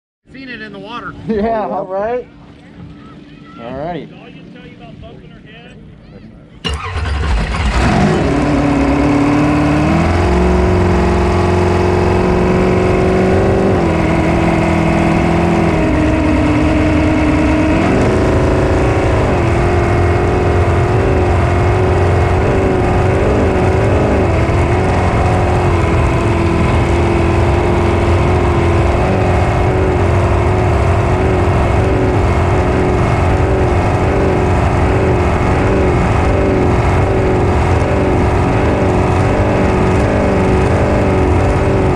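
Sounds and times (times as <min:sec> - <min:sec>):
boat engine running hard: 0:08.3 - 0:41.9.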